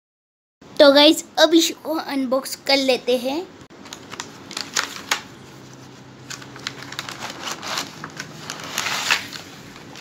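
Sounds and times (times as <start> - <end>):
plastic crinkling and rustling: 3.8 - 10.0.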